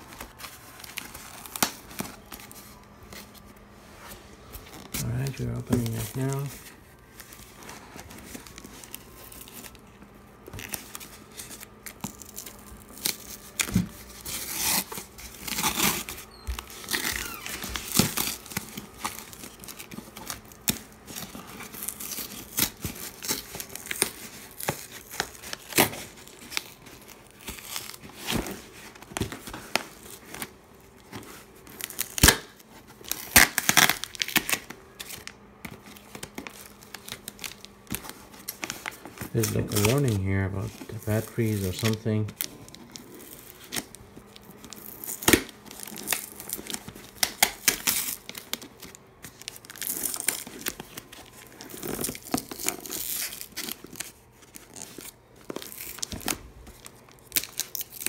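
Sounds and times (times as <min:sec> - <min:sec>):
packing tape ripping: 0:00.0 - 0:03.2, 0:07.2 - 0:58.0.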